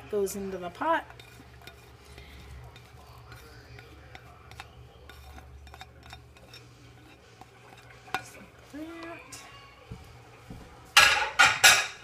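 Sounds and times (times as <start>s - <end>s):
low steady hum: 0.0s - 12.0s
spatula scraping cutting board: 1.0s - 9.2s.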